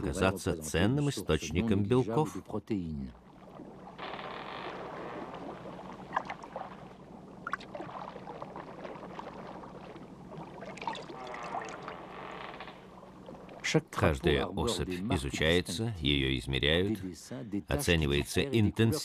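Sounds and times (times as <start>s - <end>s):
low hum: 2.8s - 17.2s
water sloshing and splashing: 3.1s - 13.8s.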